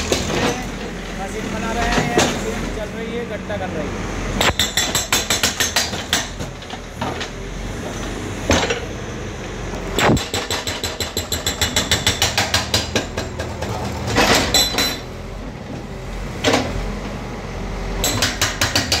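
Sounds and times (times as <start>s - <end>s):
hydraulic breaker hammering concrete: 0.0s - 1.0s, 4.4s - 7.4s, 10.0s - 15.1s, 18.0s - 19.0s.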